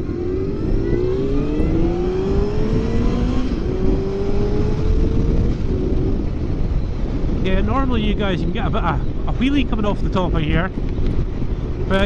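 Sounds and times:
motorcycle engine accelerating: 0:00.0 - 0:07.8
wind rushing: 0:00.0 - 0:12.0.

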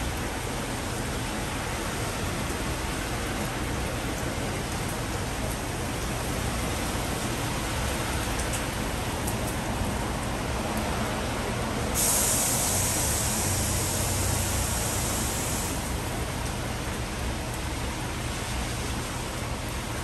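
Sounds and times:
compressed air hissing: 0:12.0 - 0:15.8.

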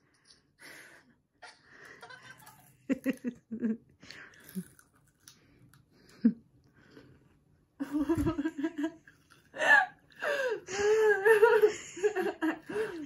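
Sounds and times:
chewing vegetable: 0:04.1 - 0:06.3, 0:09.0 - 0:10.2
girl giggling: 0:07.8 - 0:09.0, 0:09.6 - 0:13.0.

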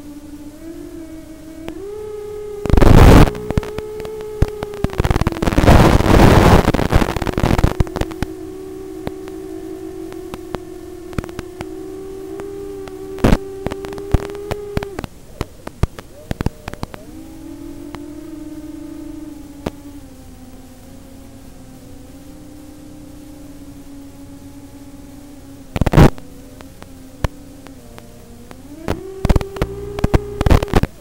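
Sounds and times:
loud crackling noise bursts: 0:00.0 - 0:31.0
quadcopter motors whining: 0:00.0 - 0:31.0
scattered clicks: 0:02.6 - 0:08.4, 0:10.0 - 0:21.0, 0:25.7 - 0:31.0.

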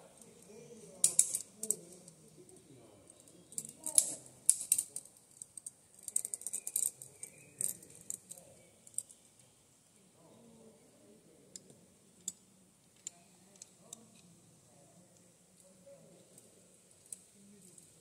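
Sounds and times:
climbing gear clinking: 0:03.2 - 0:09.1.

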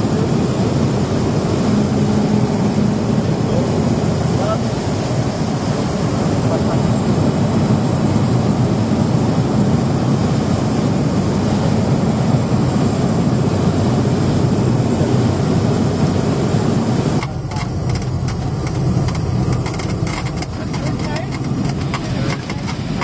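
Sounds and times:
turboprop engine inside cabin: 0:00.0 - 0:23.0
light rattles and knocks: 0:17.2 - 0:23.0.

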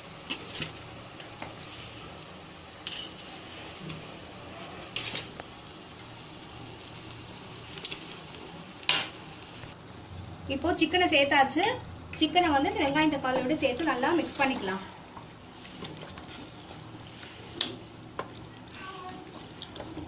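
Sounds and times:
masala sizzling in a pot: 0:00.0 - 0:20.0.

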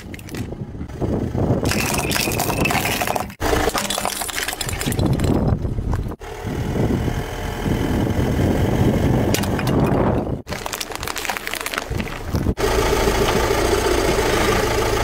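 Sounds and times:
toys crunching under tyre: 0:00.0 - 0:00.6, 0:01.6 - 0:06.2, 0:09.3 - 0:12.6
car engine running: 0:05.1 - 0:10.5, 0:11.7 - 0:15.0.

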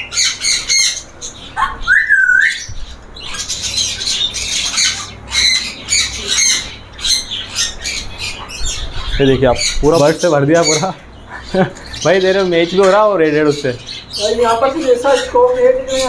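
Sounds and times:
parrots squawking and chirping: 0:00.0 - 0:16.0
rising whistled bird call: 0:01.6 - 0:02.7.

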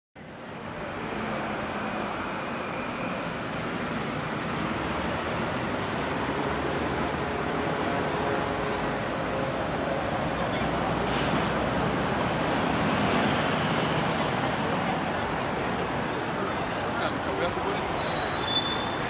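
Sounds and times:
passing cars: 0:00.2 - 0:19.0.

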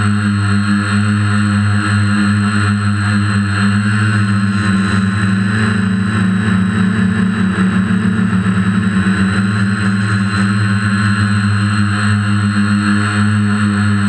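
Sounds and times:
drone motors humming: 0:00.0 - 0:14.0.

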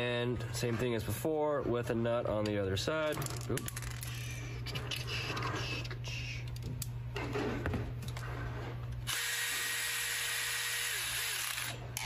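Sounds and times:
cordless drill whining: 0:09.1 - 0:11.8.

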